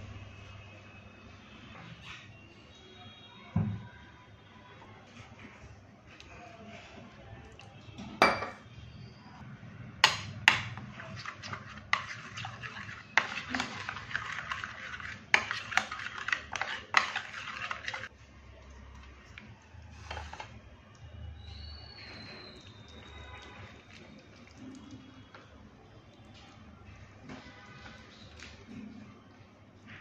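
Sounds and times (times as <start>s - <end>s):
spoon clinking and scraping bowl: 8.2s - 8.7s, 10.0s - 18.1s.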